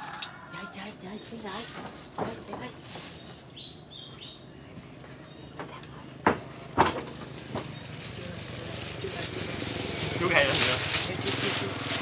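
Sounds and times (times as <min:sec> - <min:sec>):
dishes knocking on a table: 0:06.2 - 0:07.1.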